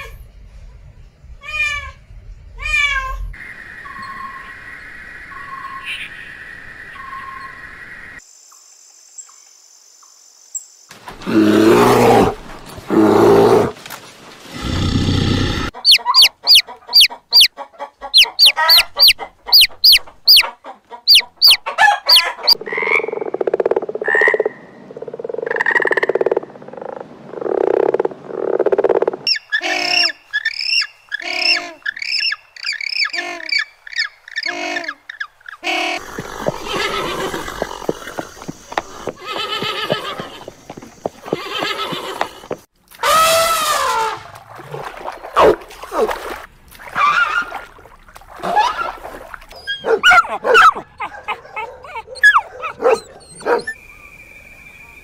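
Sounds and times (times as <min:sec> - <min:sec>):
quick animal calls: 0:15.2 - 0:17.5
hen clucking: 0:15.6 - 0:22.6, 0:36.0 - 0:42.6
chicks peeping: 0:15.8 - 0:20.5
loud animal calls: 0:35.6 - 0:43.9.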